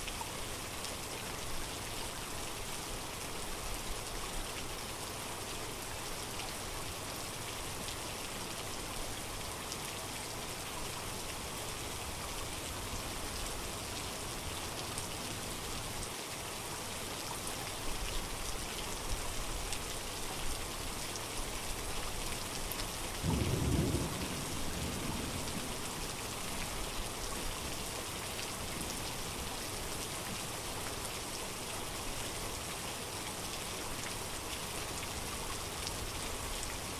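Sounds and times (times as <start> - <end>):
steady rain falling: 0.0 - 36.9
low rumble of thunder: 23.2 - 26.8.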